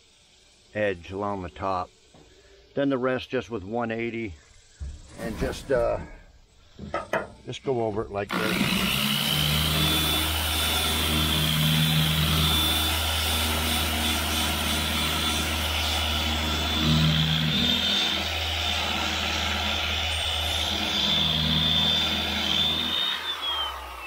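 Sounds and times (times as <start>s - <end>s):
angle grinder sanding steel: 7.8s - 24.0s
sanding disc spinning down: 8.2s - 24.0s.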